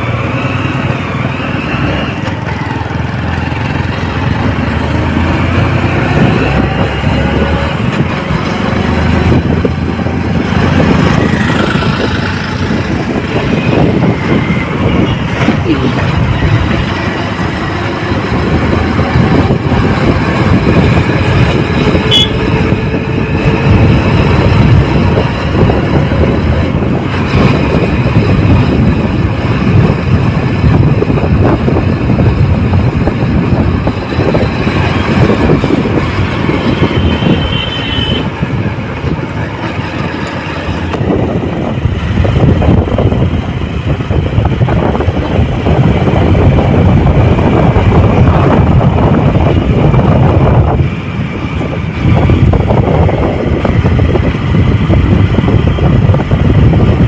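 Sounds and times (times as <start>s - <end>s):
motorcycle engine rumble: 0.0s - 57.0s
wind buffeting microphone: 0.0s - 57.0s.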